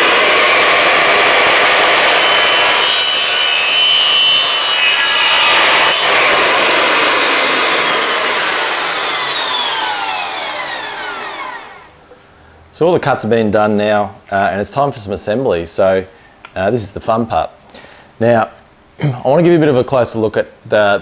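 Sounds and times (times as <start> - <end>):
mitre saw cutting pipe: 0.0 - 11.9.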